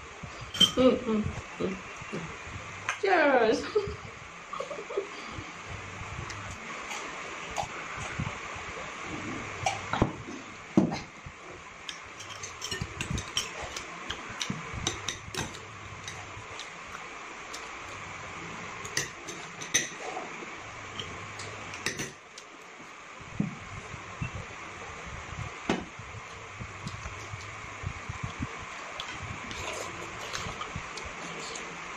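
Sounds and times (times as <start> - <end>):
forks clinking on plates: 0.6 - 0.8, 12.2 - 13.9.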